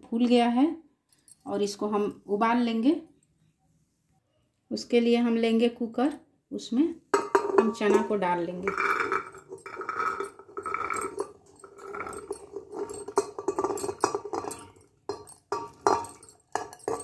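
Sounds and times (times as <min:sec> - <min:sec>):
chickpeas clicking and rattling: 0:08.7 - 0:17.0.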